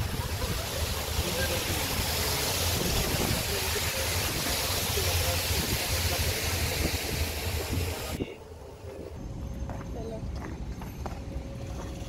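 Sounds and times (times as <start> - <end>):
waterfall rushing water: 0.0 - 8.2.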